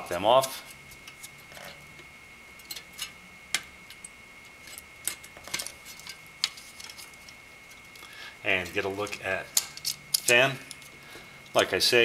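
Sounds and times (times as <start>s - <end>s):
metal fan clips clicking and snapping: 2.6s - 11.6s.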